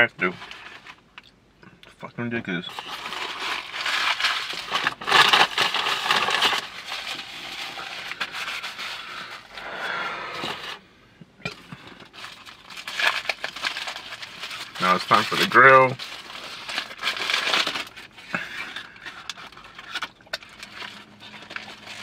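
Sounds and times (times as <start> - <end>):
foil wrapper crinkling: 2.7 - 10.0, 11.8 - 22.0.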